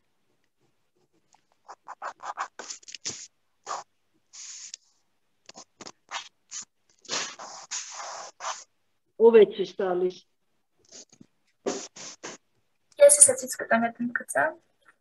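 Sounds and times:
pencil scratching on paper: 1.0s - 8.7s, 10.9s - 12.4s.

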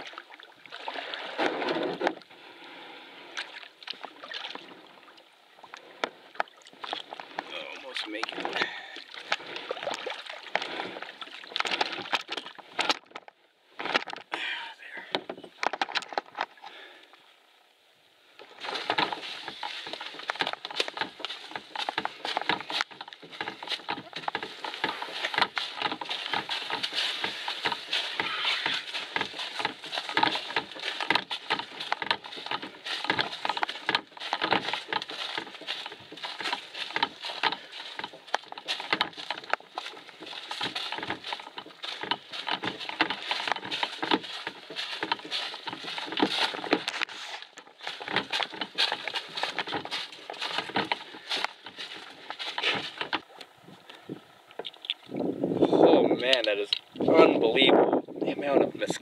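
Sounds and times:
footsteps on twigs and dry leaves: 6.3s - 16.6s, 18.4s - 53.6s.

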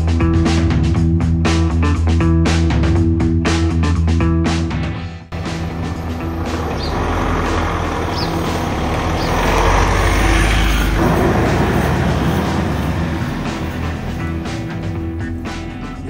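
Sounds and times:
vehicle driving past: 5.4s - 15.4s.

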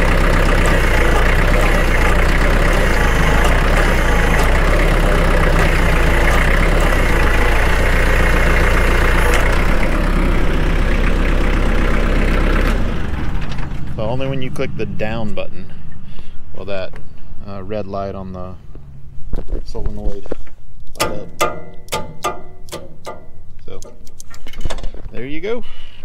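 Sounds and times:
tractor diesel engine running: 0.0s - 16.6s, 21.0s - 25.0s.

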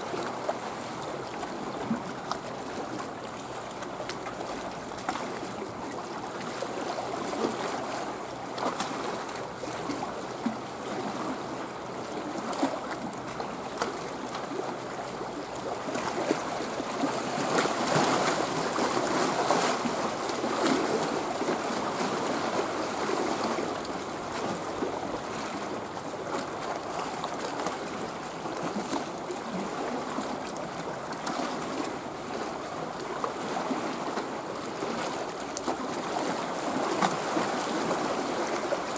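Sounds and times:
small waves lapping and splashing: 0.0s - 38.9s.

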